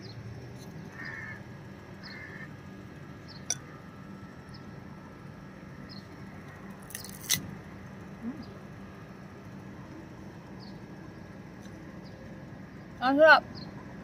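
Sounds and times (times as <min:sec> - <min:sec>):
low background hum: 0:00.0 - 0:14.0
crunching bite into mango: 0:06.8 - 0:07.5.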